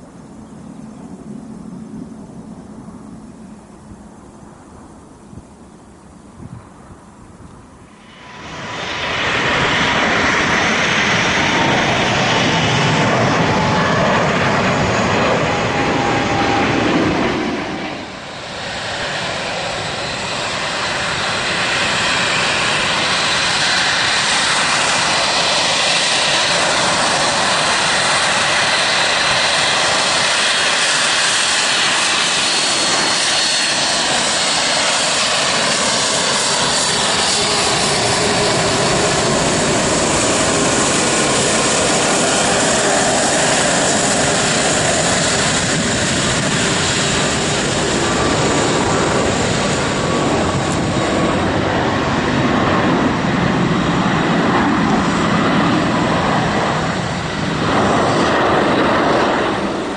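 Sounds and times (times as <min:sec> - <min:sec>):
jet engines at takeoff thrust: 0:00.0 - 0:59.9
jet engines taxiing with high whine: 0:00.0 - 0:59.9.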